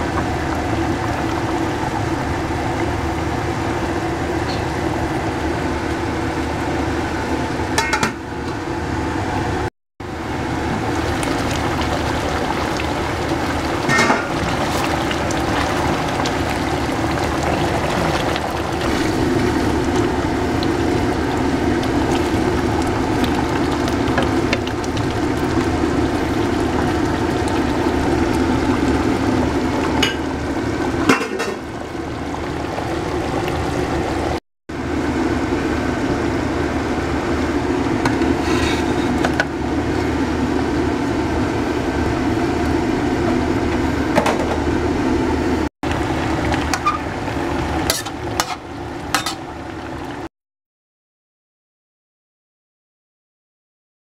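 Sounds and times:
curry bubbling in a wok: 0.0s - 7.2s, 10.0s - 35.0s.

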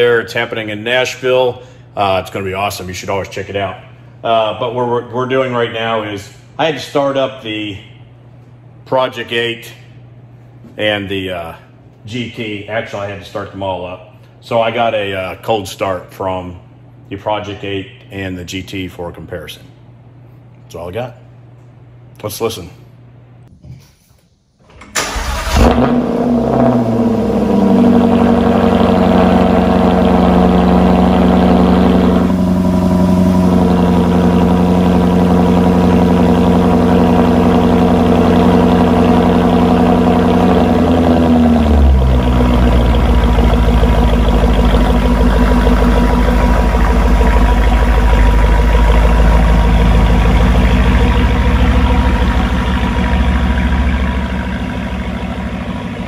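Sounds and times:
engine starting with rev flare: 24.6s - 36.2s
car engine idling: 24.7s - 56.0s.

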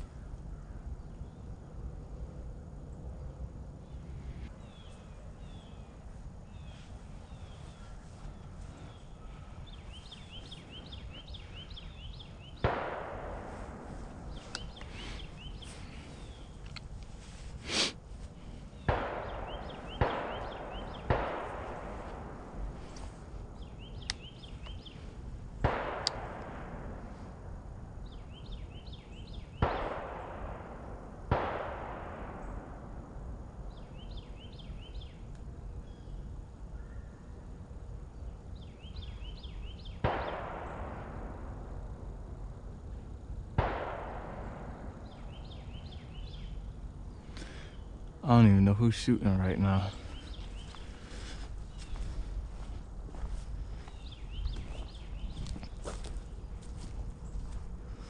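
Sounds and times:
shotgun shots with echo: 12.1s - 15.1s, 18.8s - 22.6s, 25.6s - 27.0s, 28.9s - 33.0s, 39.9s - 41.7s, 43.6s - 46.4s.

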